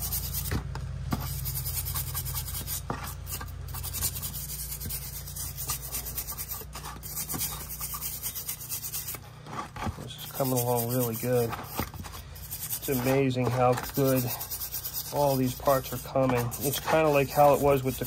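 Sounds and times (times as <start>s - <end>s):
steady low hum: 0.0s - 18.0s
stiff brush scrubbing metal: 0.0s - 18.0s.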